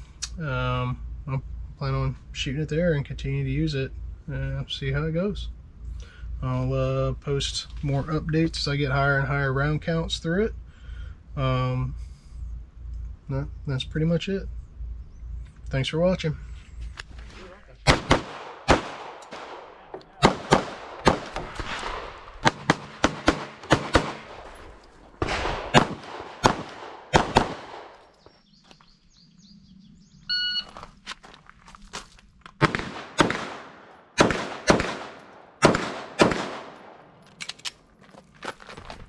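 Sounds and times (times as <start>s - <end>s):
pistol shots with echo: 17.8s - 28.0s, 32.6s - 37.2s
short beep: 30.3s - 30.8s.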